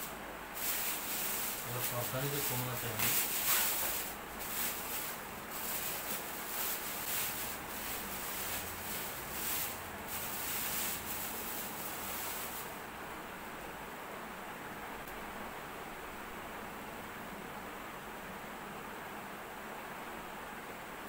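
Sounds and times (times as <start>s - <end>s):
packaging rustling: 0.6s - 12.3s.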